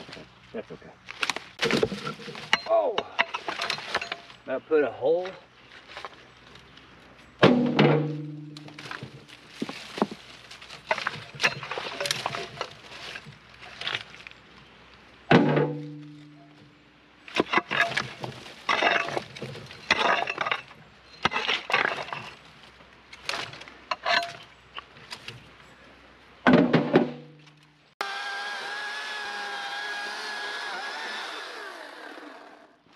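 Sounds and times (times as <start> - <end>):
clinks of steel on stone: 2.5 - 4.4, 23.9 - 24.9
steel bar striking rocks: 7.4 - 9.2, 15.3 - 16.5, 17.3 - 22.4.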